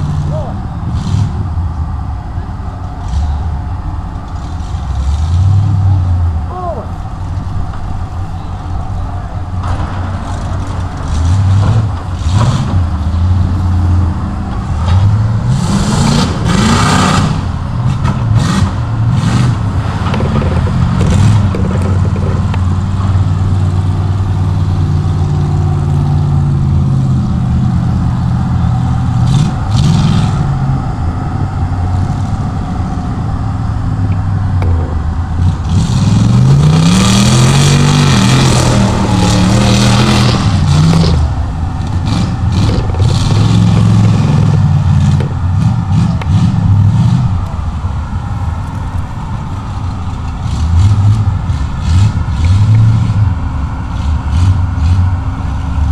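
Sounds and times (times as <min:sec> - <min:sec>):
truck engine revving: 0:00.0 - 0:55.9.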